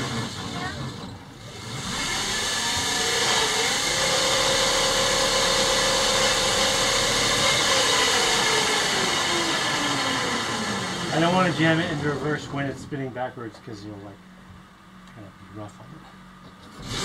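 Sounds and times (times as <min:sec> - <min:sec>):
electric motor whine: 0:00.0 - 0:12.4.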